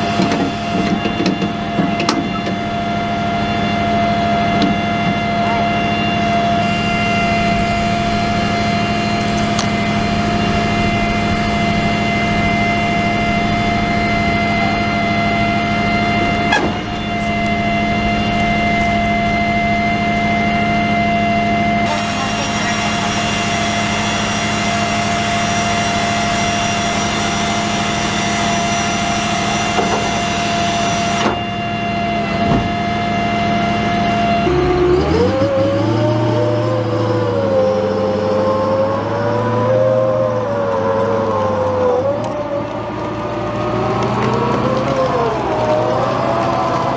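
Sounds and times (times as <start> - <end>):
constant whine: 0.0 - 46.9
tracked vehicle engine running: 0.0 - 46.9.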